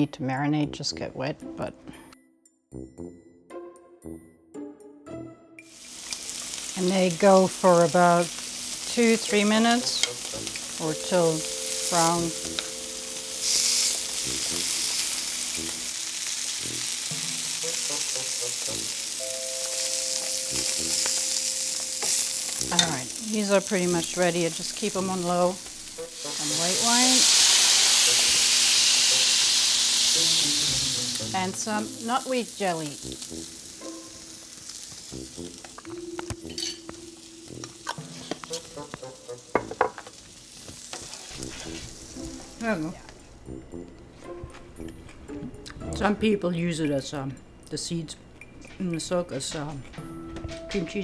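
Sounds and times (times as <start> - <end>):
food sizzling in oil: 5.6 - 43.0
metal tongs scraping in pan: 37.6 - 38.7
utensil stirring and scraping pan: 37.9 - 38.8, 40.9 - 42.0
utensil knocking against pan: 39.5 - 40.1.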